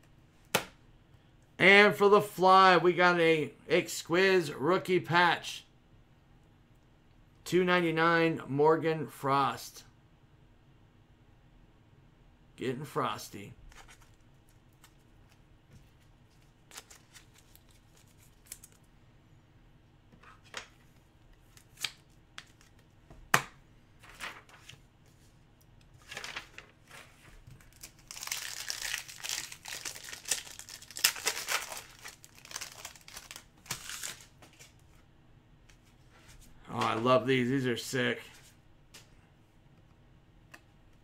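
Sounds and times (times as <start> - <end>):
foil wrapper crinkling and tearing: 16.6 - 18.8, 27.6 - 34.3.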